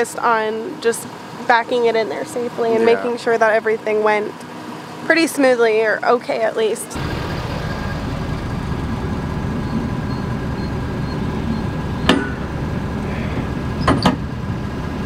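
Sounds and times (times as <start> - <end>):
truck engine idling: 7.0 - 15.0.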